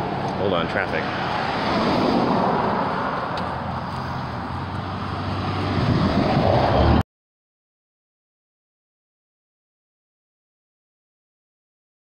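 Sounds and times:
road traffic passing close: 0.0 - 7.0.

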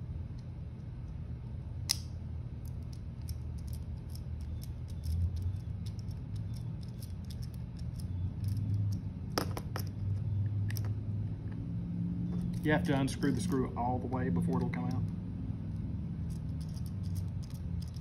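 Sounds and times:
steady low hum: 0.0 - 18.0
screwdriver ticks and scrapes: 2.7 - 9.1, 16.3 - 18.0.

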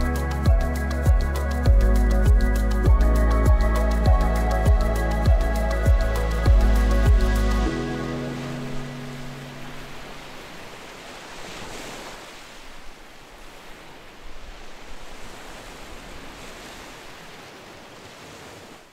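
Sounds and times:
ocean surf washing ashore: 3.2 - 18.9.

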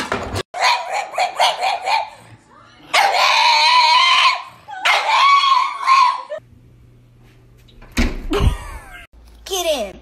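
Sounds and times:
dog screaming cries: 2.9 - 6.4.

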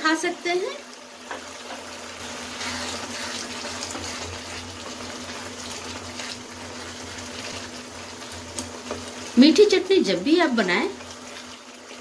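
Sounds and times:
chutney bubbling and sizzling: 0.0 - 12.0
wooden spatula stirring: 1.3 - 7.8.

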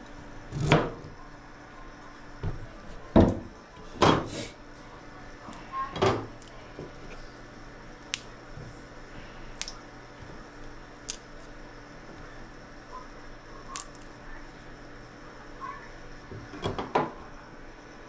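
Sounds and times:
faint steady hum: 0.0 - 18.0
kitchen knocks and clatters: 2.4 - 4.3.

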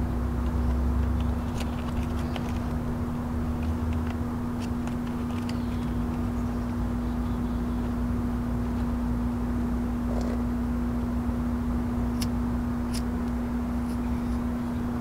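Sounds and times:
droning hum: 0.0 - 15.0.

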